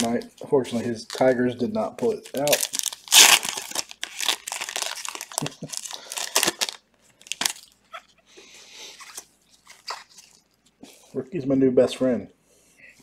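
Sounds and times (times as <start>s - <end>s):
foil wrapper crinkling and tearing: 0.0s - 1.4s, 2.0s - 8.0s, 9.0s - 10.5s.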